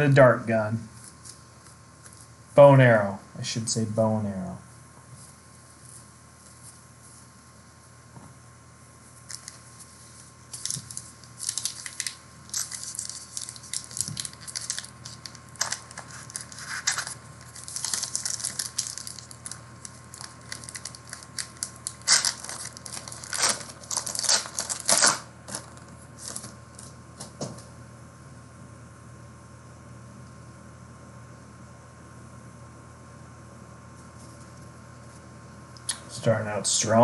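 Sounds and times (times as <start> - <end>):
card wrappers tearing and crinkling: 9.3 - 9.6, 10.5 - 26.9.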